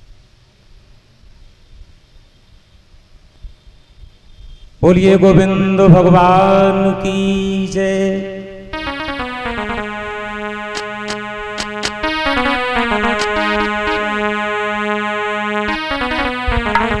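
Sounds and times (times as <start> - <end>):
keyboard chords: 5.6 - 17.0
steady low drone: 6.8 - 17.0
sharp clicks: 10.6 - 14.0.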